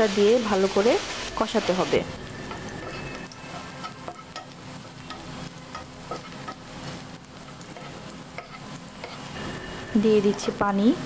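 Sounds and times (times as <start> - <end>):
fish sizzling in frying pan: 0.0 - 11.0
wooden spatula scraping pan: 1.4 - 4.5.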